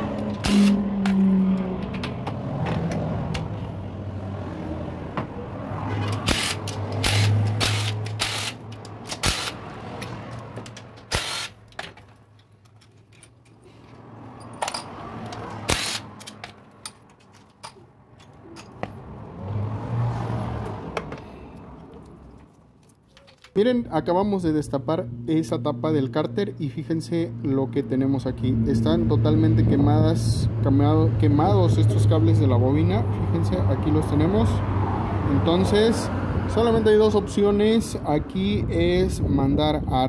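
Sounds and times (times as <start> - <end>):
metal clicks and knocks of tools: 10.0 - 18.9.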